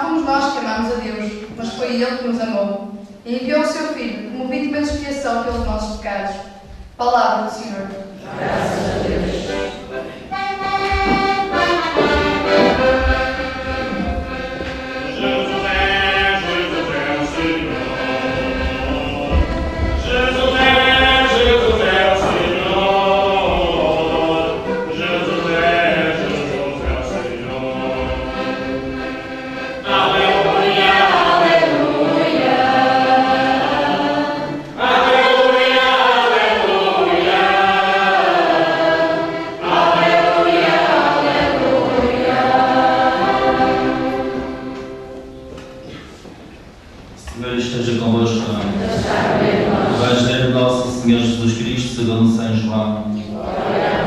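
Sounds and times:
choir singing a hymn: 0:08.0 - 0:54.0.

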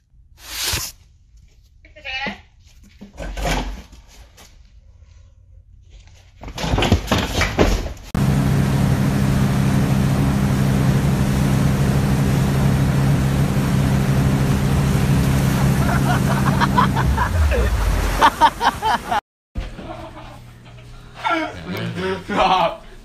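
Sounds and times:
motorboat engine humming: 0:08.2 - 0:19.2
water rushing behind boat: 0:08.2 - 0:19.2.

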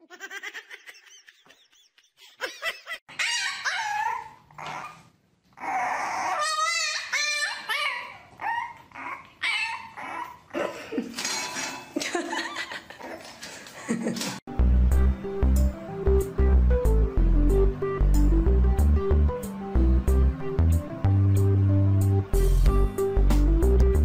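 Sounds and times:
dogs whining and yipping: 0:03.1 - 0:10.6.

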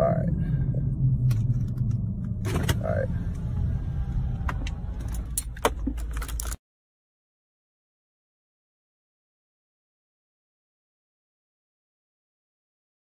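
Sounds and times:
car driving rumble: 0:00.0 - 0:06.6
sharp clicks and knocks: 0:04.4 - 0:06.6.

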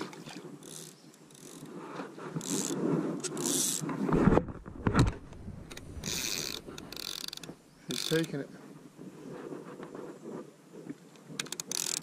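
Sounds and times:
fishing reel clicker ratcheting: 0:00.6 - 0:01.7, 0:02.4 - 0:03.8, 0:05.7 - 0:08.4, 0:11.4 - 0:12.0.

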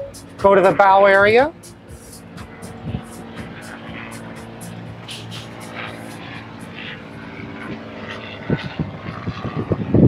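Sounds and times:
engine-like drone: 0:00.0 - 0:10.0
heavy low thumps: 0:02.2 - 0:05.0.

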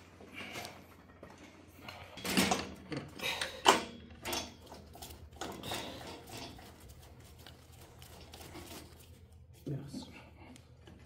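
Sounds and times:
metal clinks knocks and scrapes: 0:03.7 - 0:07.2.

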